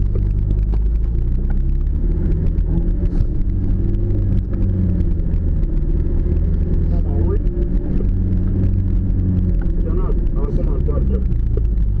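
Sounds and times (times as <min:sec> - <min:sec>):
vehicle engine at low revs: 0:00.0 - 0:12.0.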